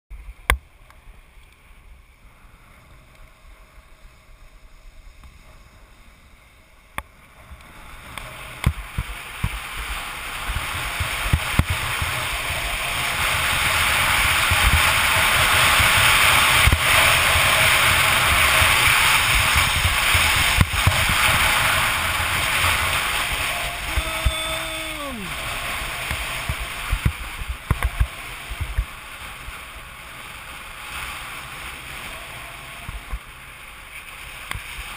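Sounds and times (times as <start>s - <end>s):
skis scraping over snow: 7.2s - 34.9s
wind buffeting microphone: 8.5s - 30.8s
brief pitched call: 23.5s - 25.4s.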